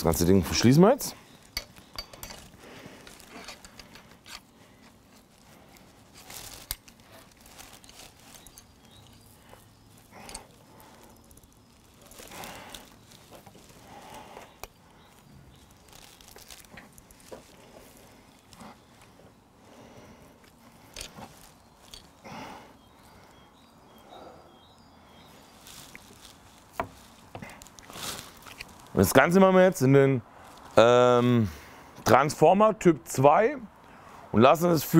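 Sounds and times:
rustling: 1.2s - 23.3s, 25.3s - 29.2s.

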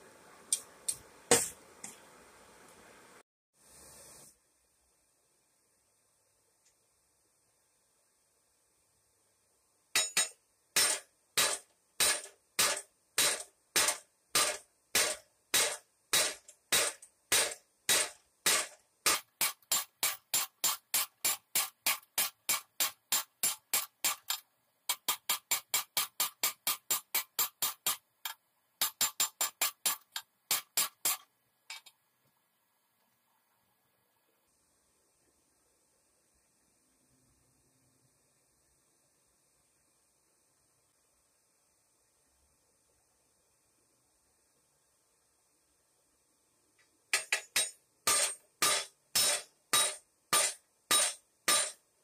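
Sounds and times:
hammer striking steel on anvil: 10.0s - 28.0s, 28.8s - 31.9s, 47.1s - 51.8s.

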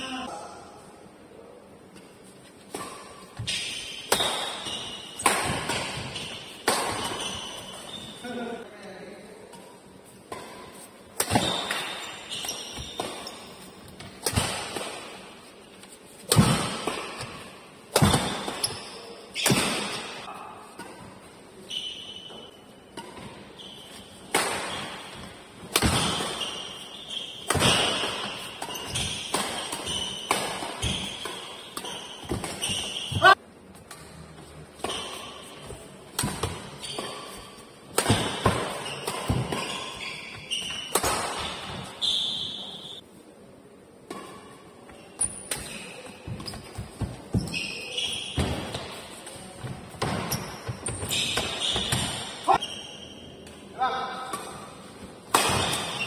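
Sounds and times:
shoes squeaking on court: 2.4s - 8.5s, 10.7s - 14.2s, 18.2s - 21.0s, 21.6s - 25.4s, 26.0s - 33.4s, 34.5s - 43.0s, 44.2s - 53.6s
rackets hitting shuttlecock: 2.6s - 8.0s, 10.3s - 15.3s, 16.2s - 21.0s, 24.2s - 34.2s, 34.8s - 42.8s, 54.2s - 56.0s.

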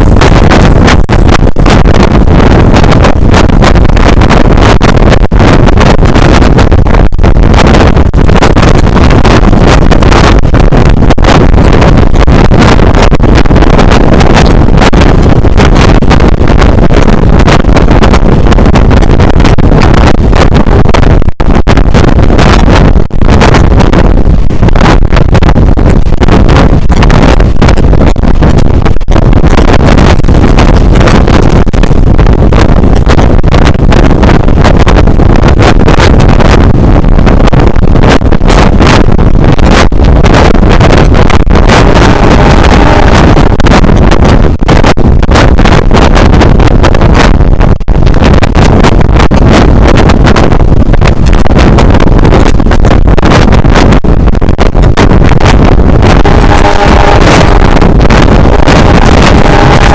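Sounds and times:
wind buffeting microphone: 0.0s - 59.9s
train running rumble: 42.0s - 43.2s, 56.2s - 58.1s.

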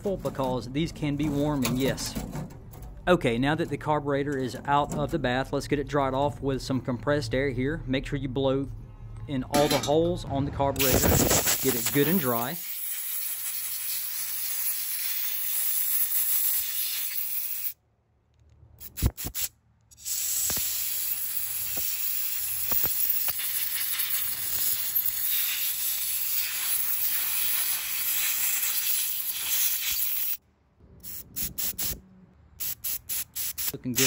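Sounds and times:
compressed air blow gun hissing: 11.0s - 17.8s, 18.9s - 30.4s, 31.0s - 32.0s, 32.6s - 34.0s.

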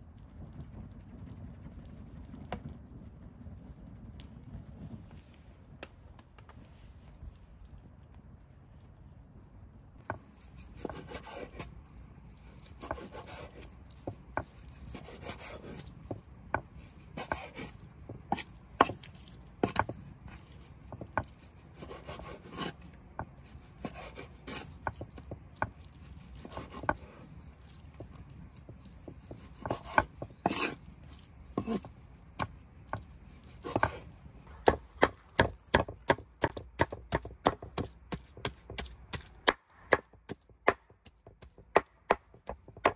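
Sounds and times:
cleaver chopping meat: 31.6s - 42.9s.

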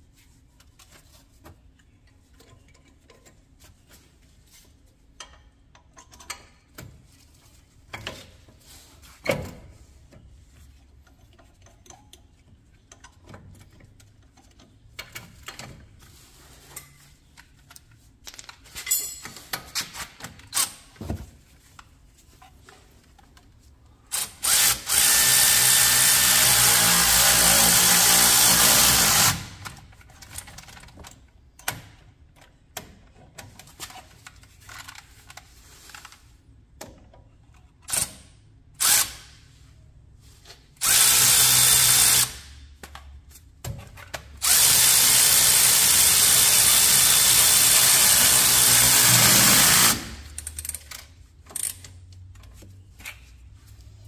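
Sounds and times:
battery-powered ratchet running bolts: 24.1s - 29.6s, 40.8s - 42.5s, 44.4s - 50.8s.

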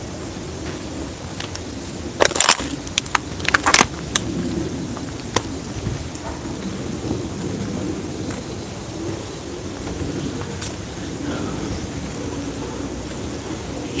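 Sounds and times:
steady rushing noise: 0.0s - 14.0s
sharp snaps and knocks: 2.2s - 4.3s.

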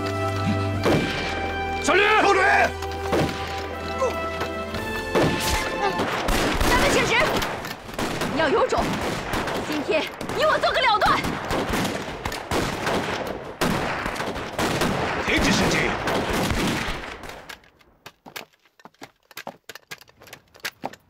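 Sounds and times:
rifle fire: 0.8s - 1.4s, 5.1s - 17.5s.

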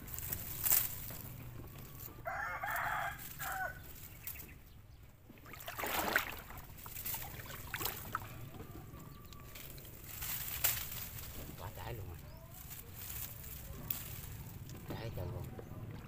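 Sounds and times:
rooster crowing: 2.0s - 3.9s, 8.2s - 9.6s.

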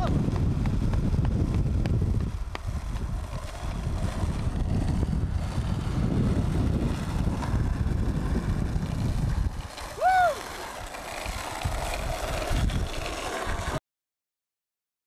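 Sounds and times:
skateboard wheels rolling on asphalt: 0.0s - 13.8s
wind on microphone: 0.0s - 13.8s.

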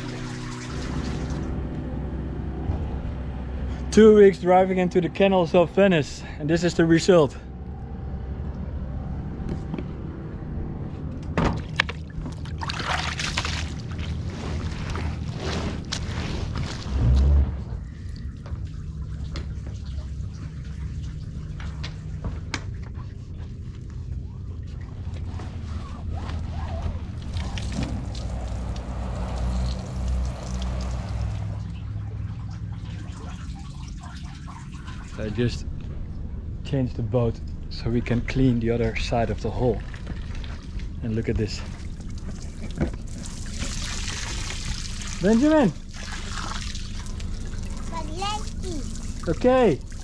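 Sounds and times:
low engine hum: 0.0s - 50.0s
wash mitt scrubbing and splashing: 12.3s - 16.9s, 41.6s - 50.0s
hose spraying onto dinghy: 27.2s - 31.6s.

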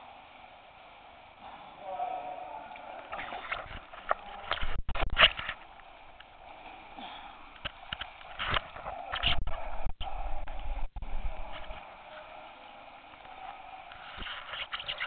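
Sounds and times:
heavy breathing: 5.7s - 9.1s.

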